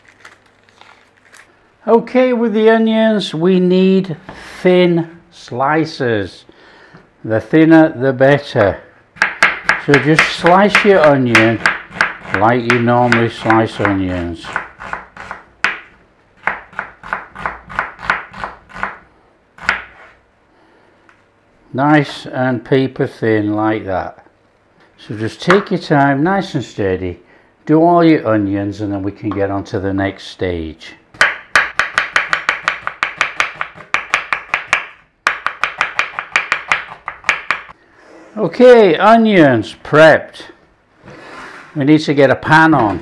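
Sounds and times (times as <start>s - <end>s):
knife slicing onion on cutting board: 9.2s - 15.8s, 16.4s - 19.0s, 19.6s - 20.2s.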